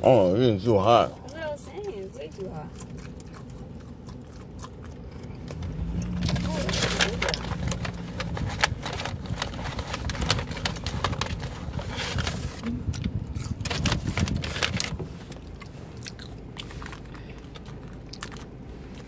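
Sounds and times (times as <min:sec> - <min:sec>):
paper bag rustling: 0:06.1 - 0:12.8, 0:13.4 - 0:15.4.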